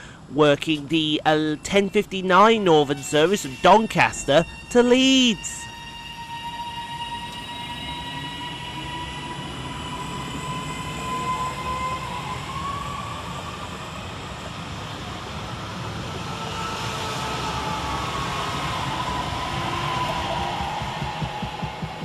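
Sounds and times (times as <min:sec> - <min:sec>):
train traction motors whining: 0:00.0 - 0:22.0
wheels rumbling on rails: 0:07.3 - 0:22.0.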